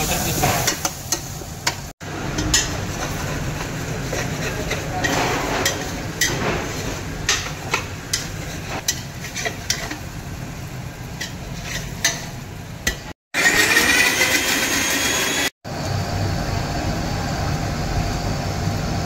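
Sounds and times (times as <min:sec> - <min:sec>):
onions sizzling: 0:00.0 - 0:13.2
spatula knocking and scraping in pan: 0:00.4 - 0:10.0, 0:11.2 - 0:13.1
mixer grinder motor whining: 0:13.4 - 0:15.5.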